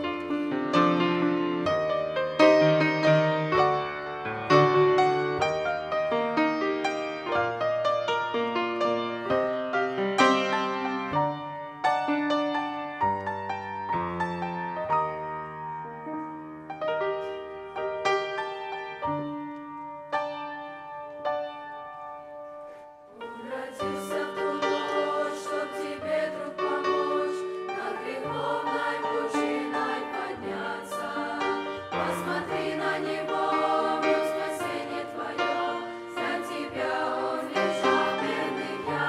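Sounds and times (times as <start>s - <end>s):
teenage choir singing: 0.0s - 1.6s, 23.1s - 39.0s
grand piano playing slow chords: 0.0s - 39.0s.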